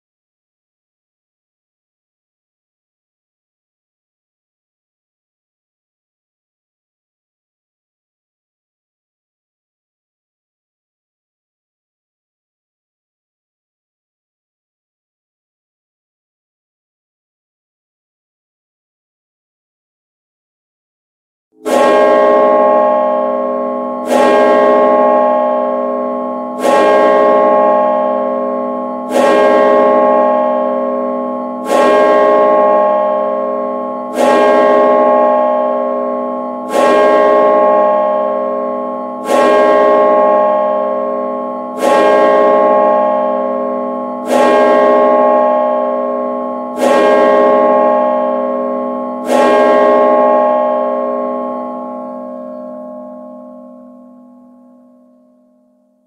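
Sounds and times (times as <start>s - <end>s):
church bell striking: 21.6s - 55.3s.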